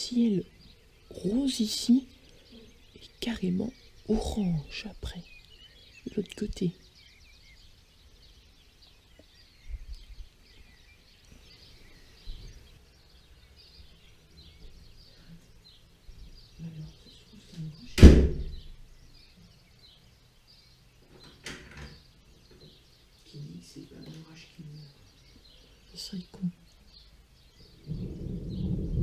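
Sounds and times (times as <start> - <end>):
birds chirping: 0.0 - 29.0
faint low rumbles: 0.0 - 29.0
sharp loud bang: 18.0 - 18.7.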